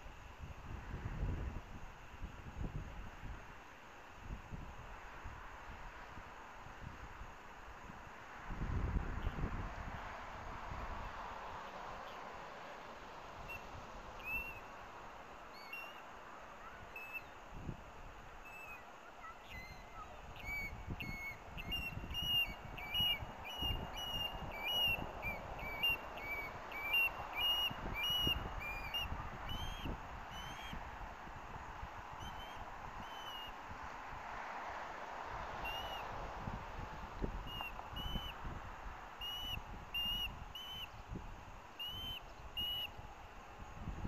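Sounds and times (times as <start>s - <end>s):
bird whistled chirps: 13.5s - 14.7s, 15.5s - 16.0s, 16.6s - 17.4s, 18.4s - 30.8s, 32.2s - 33.6s, 35.6s - 36.0s, 37.4s - 38.4s, 39.2s - 41.0s, 41.8s - 43.0s.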